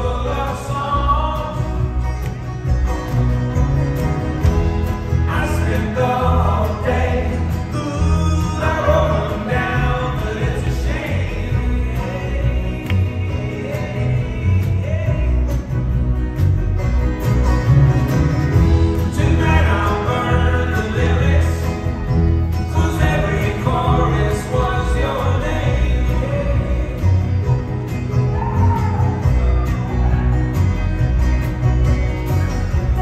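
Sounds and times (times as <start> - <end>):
voices singing: 0.0 - 2.4, 5.0 - 15.8, 19.0 - 30.4
folk-rock band playing: 0.0 - 33.0.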